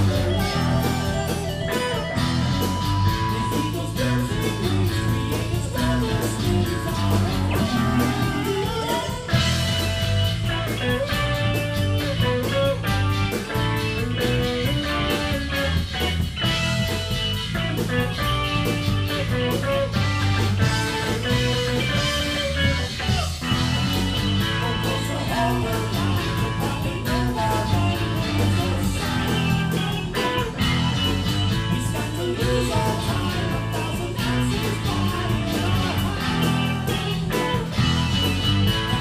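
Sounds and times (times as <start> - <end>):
drums: 0.0 - 39.0
guitar: 0.0 - 39.0
keyboards: 0.0 - 39.0.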